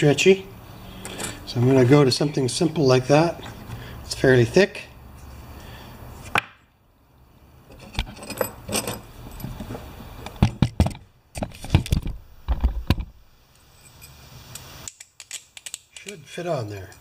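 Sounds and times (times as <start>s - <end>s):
metal screws clinking: 1.0s - 1.4s, 7.7s - 9.6s.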